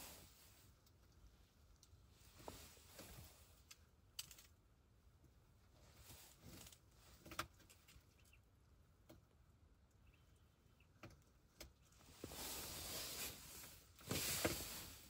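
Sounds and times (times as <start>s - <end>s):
faint rustling: 11.9s - 15.0s.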